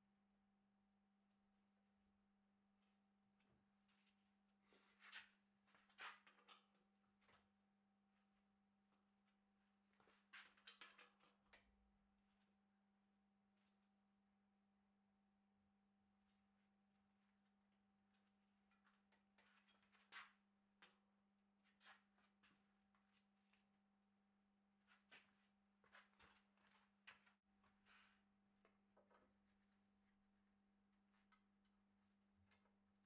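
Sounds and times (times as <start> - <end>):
clicks and rattles of hands working: 5.0 - 7.6, 9.3 - 11.9.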